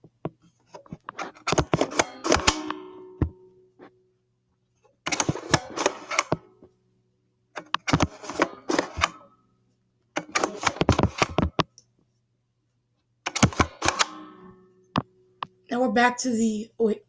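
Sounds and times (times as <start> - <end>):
lever mechanism clicking and rattling: 1.3 - 3.0, 5.1 - 6.4, 7.6 - 9.2, 10.2 - 11.5, 13.3 - 14.4.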